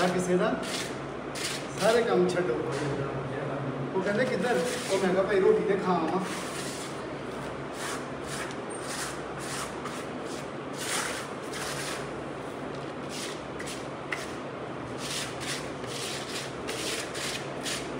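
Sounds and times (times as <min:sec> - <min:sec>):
putty knife scraping plaster wall: 0:00.0 - 0:01.9, 0:06.2 - 0:07.0, 0:07.7 - 0:12.1, 0:15.0 - 0:17.9.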